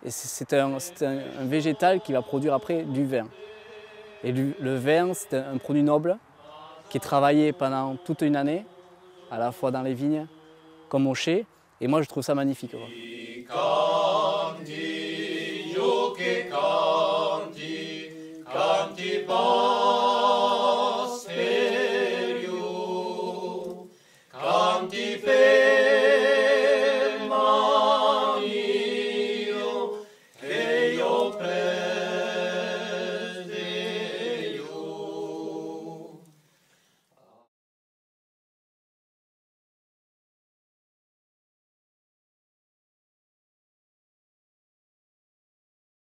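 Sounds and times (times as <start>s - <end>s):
unaccompanied choir singing: 0.1s - 11.3s, 12.5s - 36.4s.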